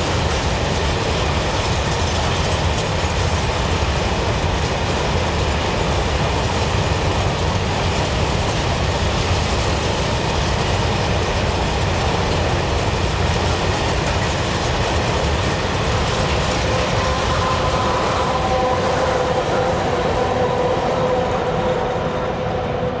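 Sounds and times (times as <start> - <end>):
train wheels clattering over rail joints: 0.0 - 22.1
diesel locomotive engine hum: 0.0 - 23.0.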